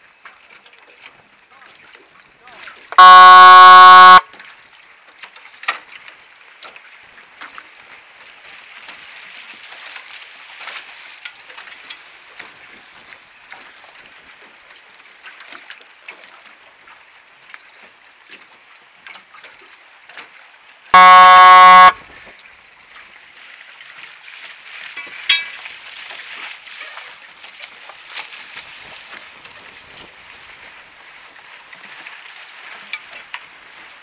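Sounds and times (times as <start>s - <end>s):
splashes and clicks against hull: 0.0s - 2.9s, 4.3s - 20.9s, 21.9s - 34.0s
motorboat on choppy water: 0.0s - 34.0s
wind: 0.0s - 34.0s
horn blast: 3.0s - 4.2s, 21.0s - 22.0s.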